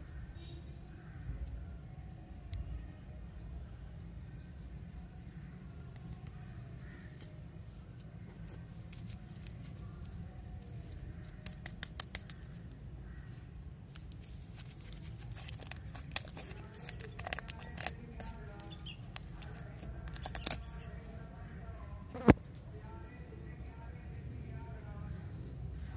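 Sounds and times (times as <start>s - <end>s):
wrappers crinkling: 14.0s - 20.8s.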